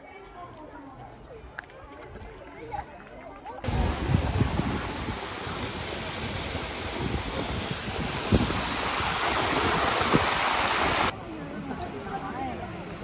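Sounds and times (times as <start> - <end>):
waterfall splashing over rocks: 3.7 - 11.1.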